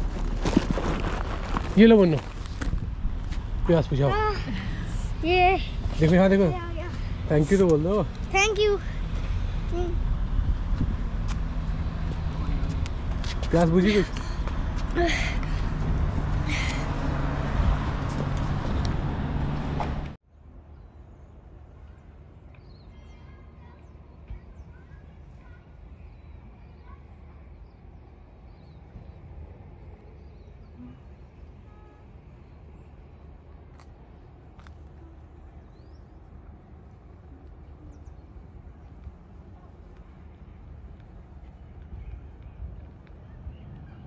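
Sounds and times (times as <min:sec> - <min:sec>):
loud street noise hum: 0:02.3 - 0:20.7.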